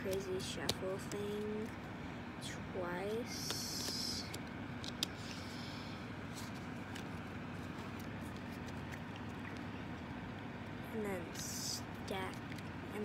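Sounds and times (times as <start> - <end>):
cards clicking and tapping: 0.0 - 1.7, 3.3 - 5.3
steady low hum: 0.0 - 13.0.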